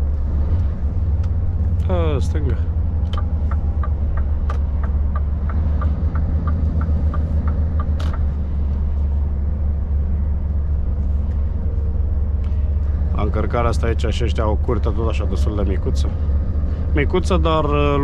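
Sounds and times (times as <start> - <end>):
truck engine and tyres droning: 0.0 - 18.0
turn signal ticking: 0.4 - 8.9.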